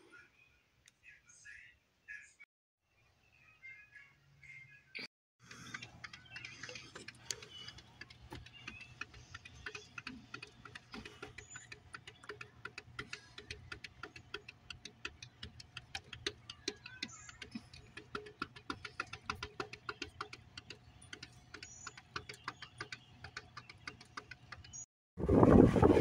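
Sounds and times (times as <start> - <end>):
cat claws tapping on glass: 5.5 - 24.8.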